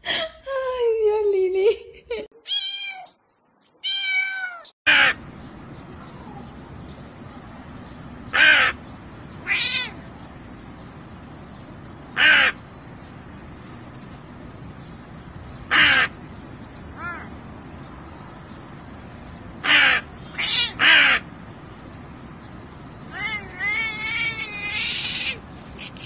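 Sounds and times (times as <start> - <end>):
cat meowing: 2.5 - 3.2, 3.8 - 4.7, 9.4 - 10.0, 20.3 - 20.8, 23.1 - 25.4
crow cawing: 4.9 - 5.2, 8.3 - 8.8, 12.2 - 12.6, 15.7 - 16.1, 19.6 - 21.3.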